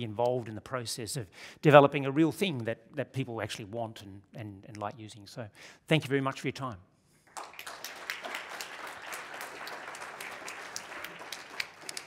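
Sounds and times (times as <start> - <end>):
audience applauding: 7.3 - 12.0.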